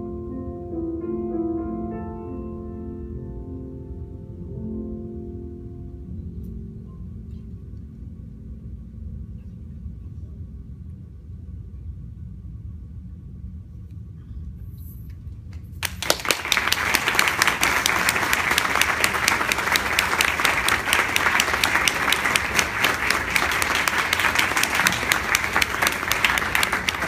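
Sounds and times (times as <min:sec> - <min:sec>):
audience applause: 0:15.8 - 0:27.0.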